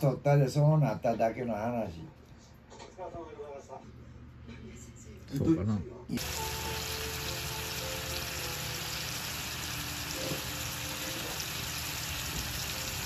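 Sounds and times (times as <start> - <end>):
food sizzling in a frying pan: 6.2 - 13.0.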